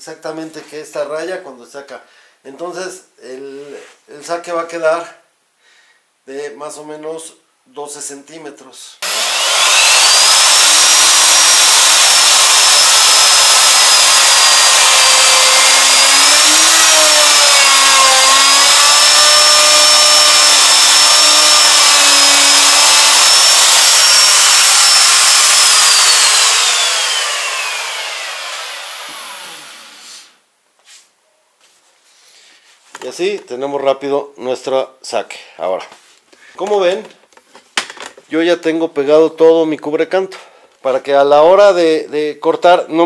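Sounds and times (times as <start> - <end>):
router whining while cutting: 9.0 - 30.3
router winding down: 9.0 - 30.3.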